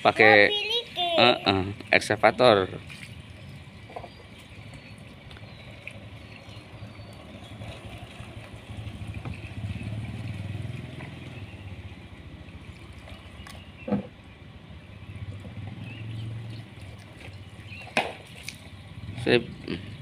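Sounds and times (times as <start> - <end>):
vehicle engine running: 3.2 - 18.0.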